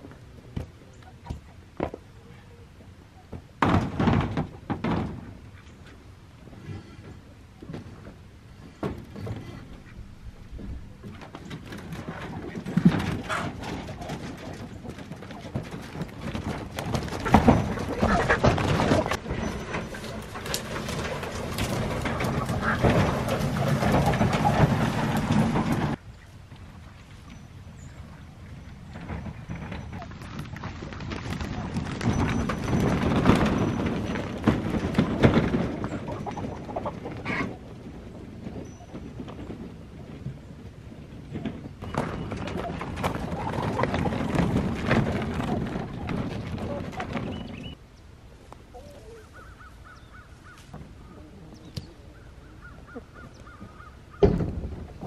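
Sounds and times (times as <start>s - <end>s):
cart clattering and knocking: 3.3s - 26.0s, 27.1s - 47.8s, 51.6s - 55.0s
wheels and boots crunching on gravel: 3.4s - 47.8s
coop frame rattling: 6.8s - 26.0s, 28.6s - 47.8s
hens clucking: 9.2s - 26.0s, 31.1s - 38.9s, 41.9s - 47.8s, 48.7s - 54.1s
hens squawking: 17.1s - 19.2s.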